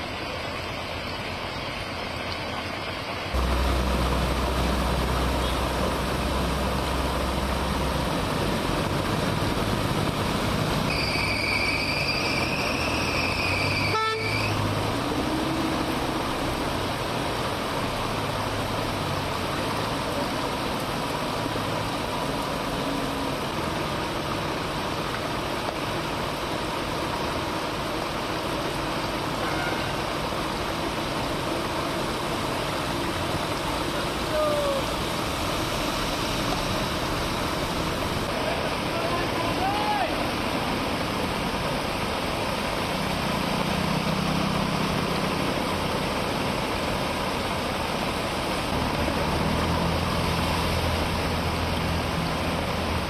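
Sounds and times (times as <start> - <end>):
heavy rain hissing: 0.0 - 53.0
traffic on wet roads: 0.0 - 53.0
vehicle horn: 13.8 - 14.6, 29.4 - 30.0.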